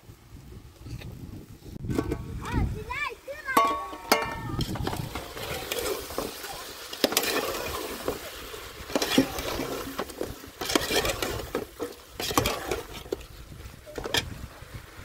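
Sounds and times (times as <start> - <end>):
metal spoon scraping a pot: 3.6 - 8.2, 8.9 - 13.2.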